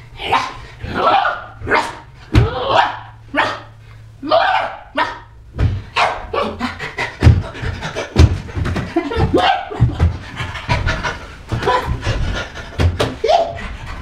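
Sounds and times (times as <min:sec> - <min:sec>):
bark-like vocal yelps: 0:00.3 - 0:05.4, 0:06.0 - 0:06.8, 0:09.2 - 0:09.9.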